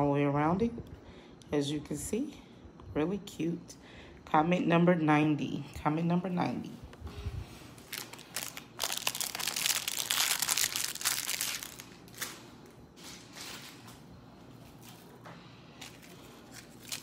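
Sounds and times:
packaging crinkling and rustling: 7.8 - 14.0, 15.8 - 17.0.

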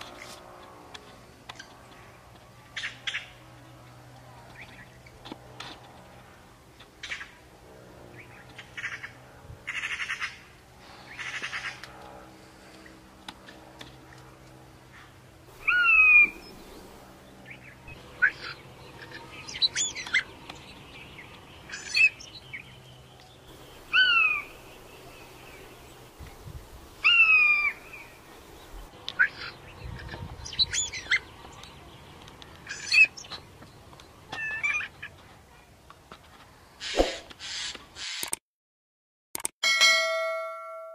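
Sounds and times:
sharp downward-sliding bird call: 15.6 - 16.7, 23.9 - 24.6, 27.0 - 28.1
short harsh bird calls: 15.6 - 16.7, 23.6 - 24.6, 27.0 - 28.1, 36.8 - 38.2.

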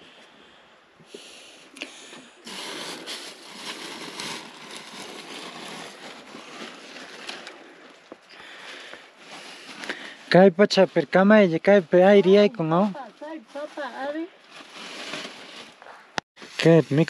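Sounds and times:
plastic bags rustling: 2.3 - 16.0.

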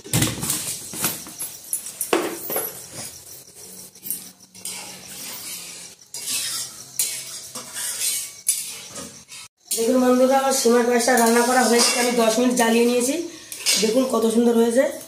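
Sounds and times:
spoon scraping metal pot: 2.7 - 14.4.

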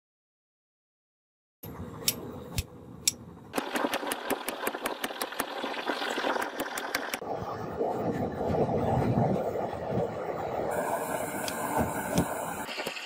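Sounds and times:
steady hiss: 10.7 - 13.0.

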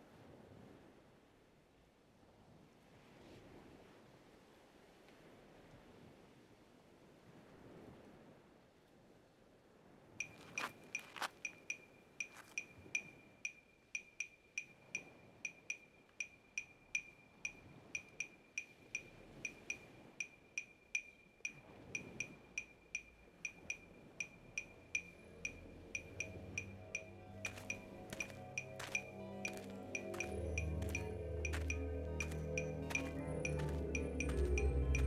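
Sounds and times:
mechanical clock ticking: 11.4 - 35.0
low sustained music tones: 11.9 - 35.0.

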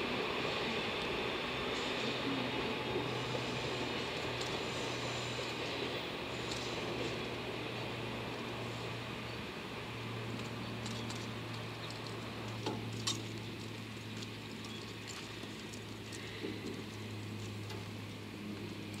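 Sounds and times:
distant locomotive drone: 0.0 - 19.0.

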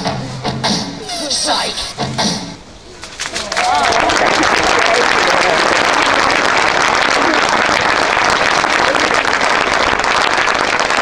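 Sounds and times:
crowd applause: 3.0 - 11.0.

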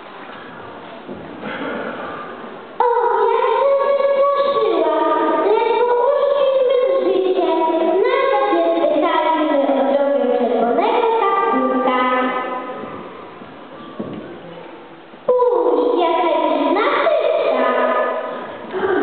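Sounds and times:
children singing together: 2.8 - 13.4.

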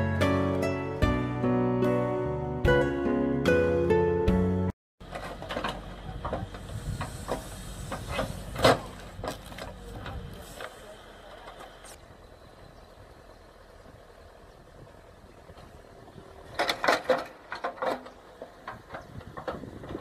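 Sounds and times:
diesel engine running: 5.0 - 20.0
cracks and knocks of stump: 8.2 - 10.2.

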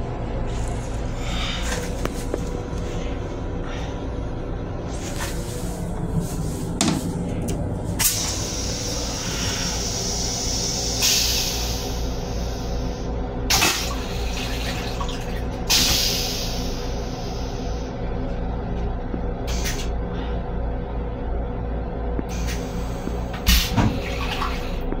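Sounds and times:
steady low rumble: 0.0 - 25.0
toilet rinse water hissing: 8.0 - 17.9.

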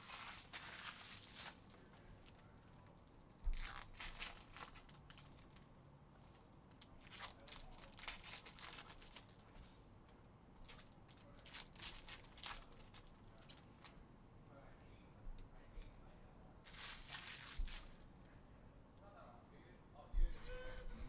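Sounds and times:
foil wrappers tearing and crinkling: 0.0 - 2.8, 3.5 - 9.5, 10.6 - 14.0, 16.7 - 18.1.

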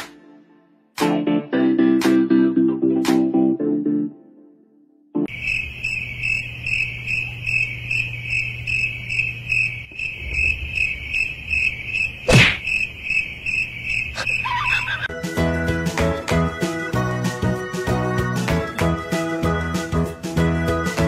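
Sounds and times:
cricket chirping: 5.3 - 15.1.

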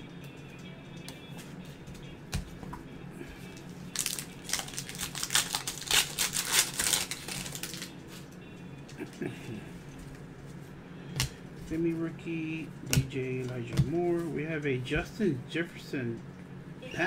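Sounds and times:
foil wrapper crinkling and tearing: 3.9 - 8.0.

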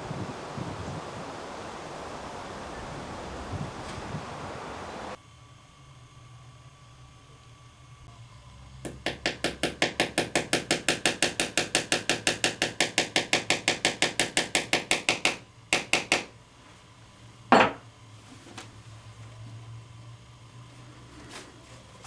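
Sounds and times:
hammer tapping nail: 8.8 - 16.3.

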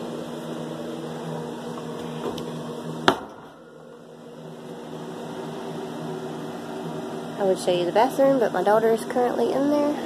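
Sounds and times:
appliance humming: 0.0 - 10.0
sharp knock: 3.0 - 3.5.

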